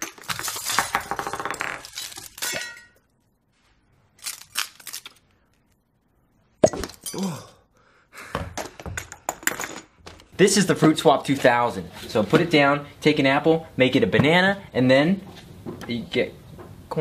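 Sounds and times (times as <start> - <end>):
glass ornament crunching: 0.0 - 3.1
glass shards clinking: 1.8 - 3.1.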